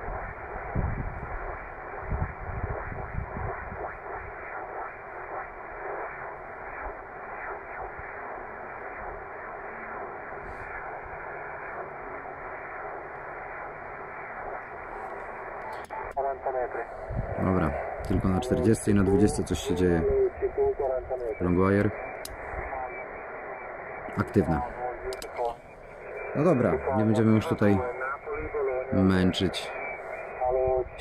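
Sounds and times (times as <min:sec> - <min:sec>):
radio static hiss: 0:00.0 - 0:31.0
low rumbles: 0:16.2 - 0:28.9.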